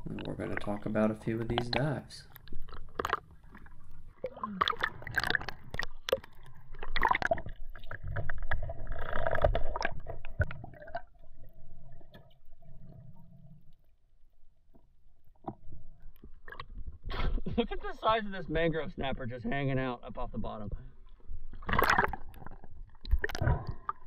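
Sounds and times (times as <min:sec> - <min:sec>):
water bubbling: 0:00.0 - 0:13.8, 0:20.8 - 0:24.0
seawater splashing and sloshing: 0:21.6 - 0:24.0.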